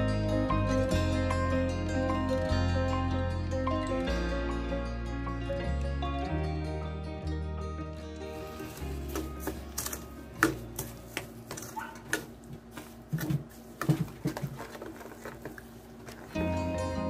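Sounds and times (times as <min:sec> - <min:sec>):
background music: 0:00.0 - 0:12.0, 0:16.1 - 0:17.0
plastic spoon stirring thick pulp: 0:08.3 - 0:16.6.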